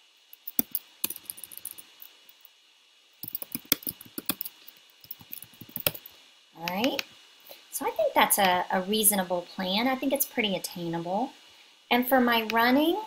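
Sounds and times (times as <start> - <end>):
computer keyboard typing: 0.4 - 1.8, 3.2 - 6.1.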